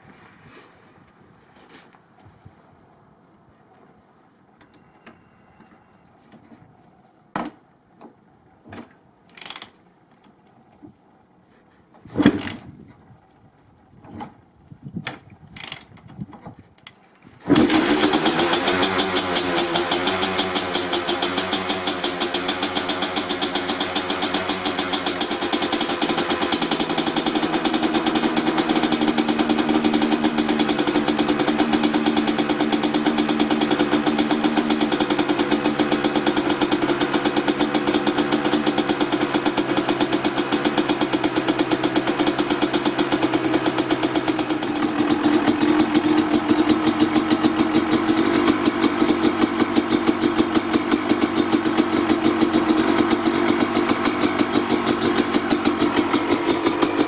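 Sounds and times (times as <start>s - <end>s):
dirt bike engine running: 17.5s - 57.0s.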